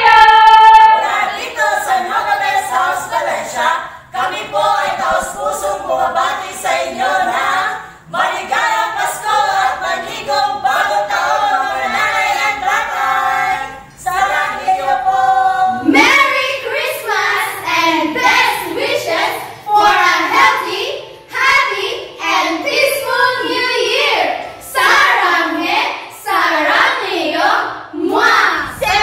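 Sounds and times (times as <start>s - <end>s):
women singing unaccompanied: 0.0s - 29.0s.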